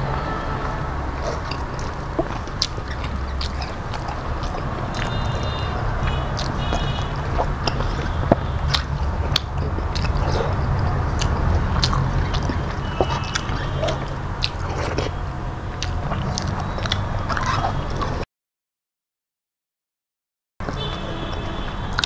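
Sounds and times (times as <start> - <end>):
low hum: 0.0 - 17.2
person chewing food: 1.1 - 18.2.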